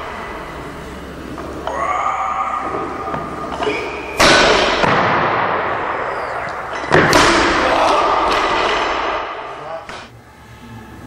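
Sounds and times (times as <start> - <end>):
barbell dropping with thuds: 6.7 - 9.2.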